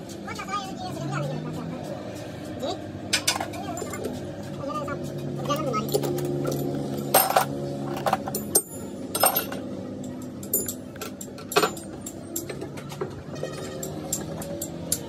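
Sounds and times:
metal tools clinking on workbench: 3.1s - 4.2s, 5.4s - 15.0s.

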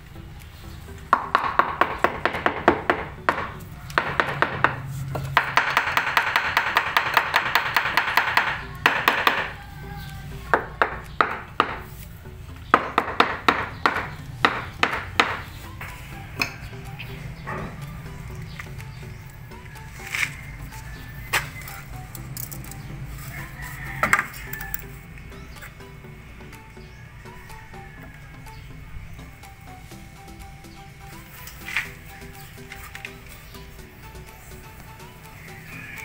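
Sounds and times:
fist tapping on ceramic tile: 5.4s - 9.5s.

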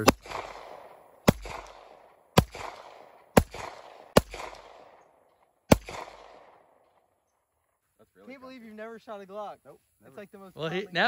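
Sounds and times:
pistol shots echoing: 0.0s - 7.2s.

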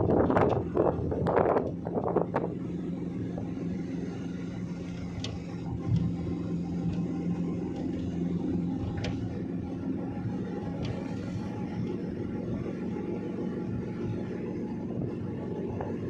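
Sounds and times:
wind buffeting microphone: 0.0s - 3.9s
car engine and road noise: 0.0s - 16.0s.

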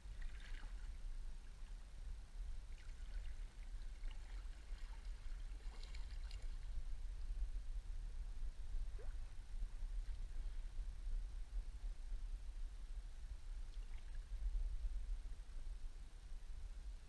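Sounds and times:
steady low rumble: 0.0s - 17.0s
paddle splashing in water: 2.9s - 6.6s.

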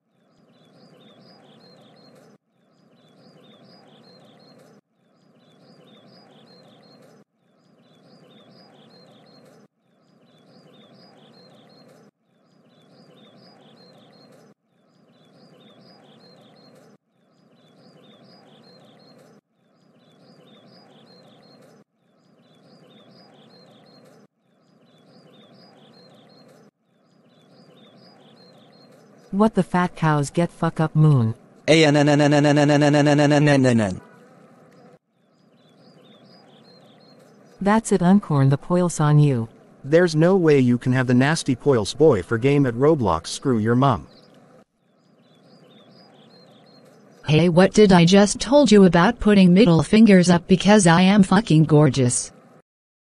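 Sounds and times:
birds chirping: 0.0s - 52.6s.

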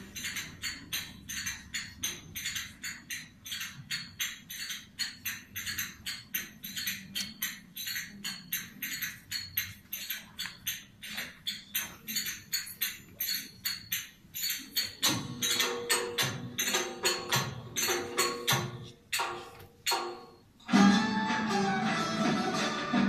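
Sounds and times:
jingling metallic percussion: 0.0s - 20.5s
folk dance melody: 20.7s - 23.0s.

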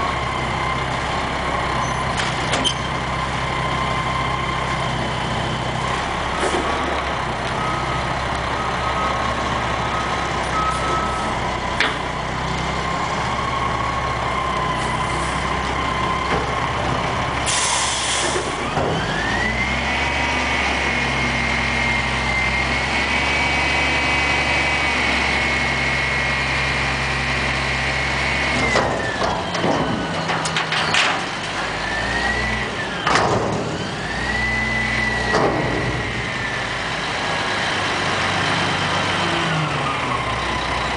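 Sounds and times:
air brake hiss: 17.5s - 18.6s
metal clanks and bangs: 28.6s - 31.9s, 33.0s - 33.9s, 35.2s - 36.3s.

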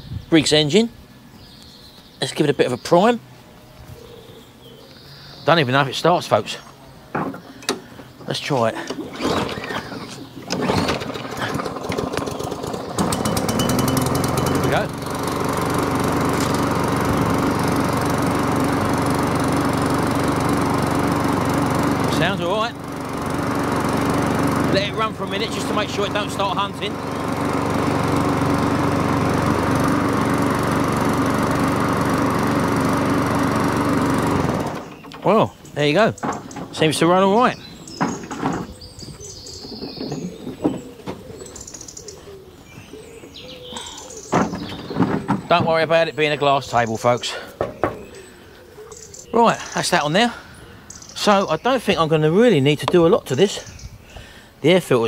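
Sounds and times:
birds chirping: 0.0s - 55.0s
lawn mower engine running: 7.1s - 42.2s, 43.3s - 48.4s.

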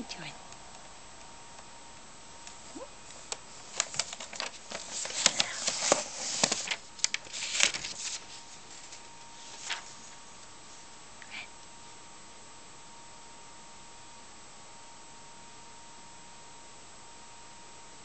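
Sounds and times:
paper rustling and crinkling: 3.1s - 10.3s.

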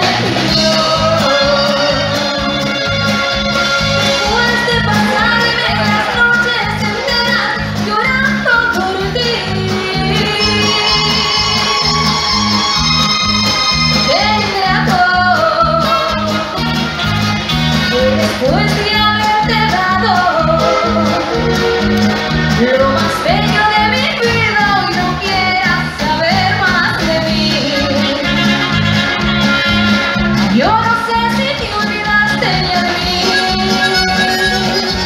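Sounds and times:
person singing: 0.0s - 3.2s, 17.9s - 28.6s, 30.6s - 35.0s
latin dance band playing: 0.0s - 35.0s.

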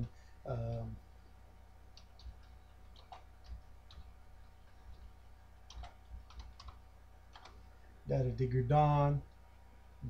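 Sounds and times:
computer keyboard key clicks: 5.7s - 6.8s, 7.4s - 7.6s.

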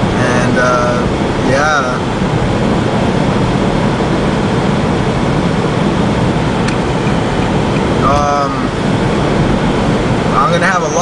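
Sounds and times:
car road and engine noise: 0.0s - 11.0s.

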